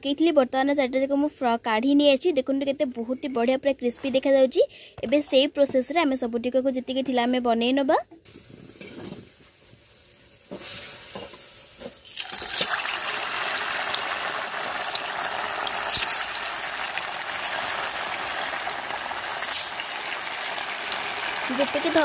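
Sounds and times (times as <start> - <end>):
deep-frying sizzle: 8.2 - 22.0.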